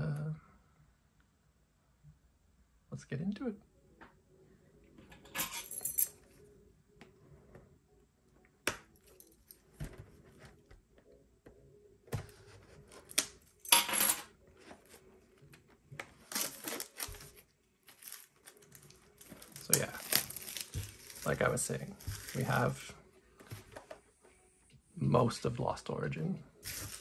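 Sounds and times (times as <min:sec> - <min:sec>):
cardboard and packs rustling: 0:12.1 - 0:13.2, 0:14.5 - 0:24.0, 0:26.6 - 0:27.0.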